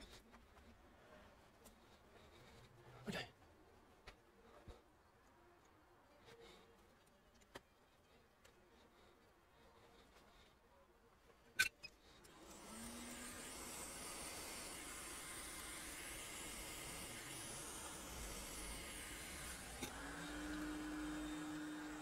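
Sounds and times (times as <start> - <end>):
hot-air gun hissing: 12.3 - 22.0.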